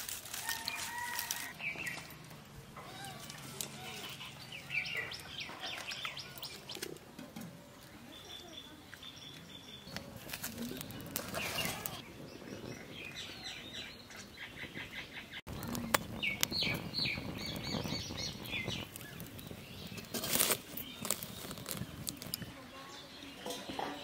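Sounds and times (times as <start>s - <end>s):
watermelon set onto burning twigs: 0.0s - 4.3s, 9.4s - 12.0s, 15.5s - 22.6s
twigs crackling and popping in fire: 0.0s - 8.0s, 8.9s - 13.2s, 15.5s - 22.6s
birds chirping: 0.4s - 24.0s.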